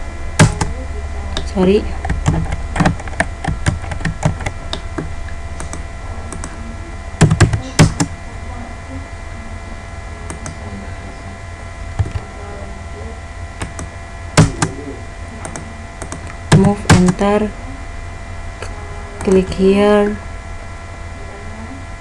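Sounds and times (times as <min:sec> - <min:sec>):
steady low hum: 0:00.0 - 0:22.0
keyboard keystrokes: 0:07.2 - 0:08.1, 0:15.4 - 0:17.2.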